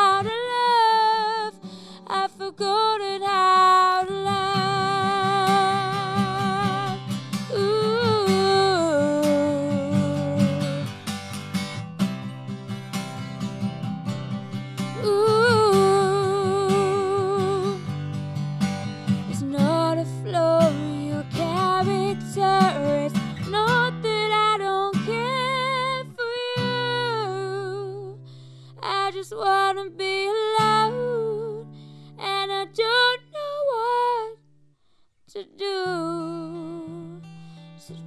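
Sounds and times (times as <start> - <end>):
woman singing: 0.0 - 11.0, 14.8 - 18.0, 19.1 - 34.5, 35.3 - 38.0
acoustic guitar: 0.0 - 38.0.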